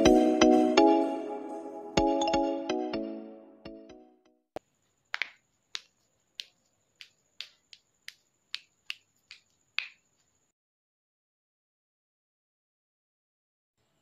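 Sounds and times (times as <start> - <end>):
dough balls clicking on wooden table: 5.1 - 10.4.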